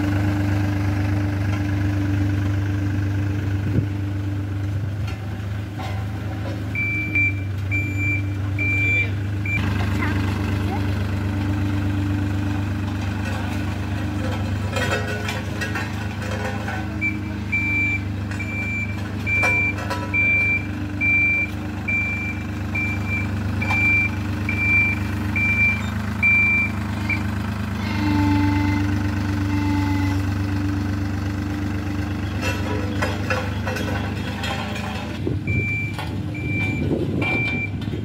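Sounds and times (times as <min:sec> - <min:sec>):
road roller diesel engine running: 0:00.0 - 0:38.0
reversing alarm beeps: 0:06.8 - 0:09.6, 0:17.0 - 0:27.2, 0:35.5 - 0:37.8.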